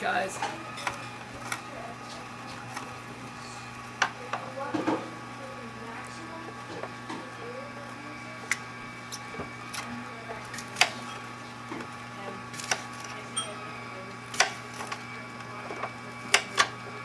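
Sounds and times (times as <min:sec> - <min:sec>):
juicer motor humming: 0:00.0 - 0:17.0
cutting produce on a tray: 0:00.4 - 0:03.0, 0:08.4 - 0:13.6, 0:14.2 - 0:16.9.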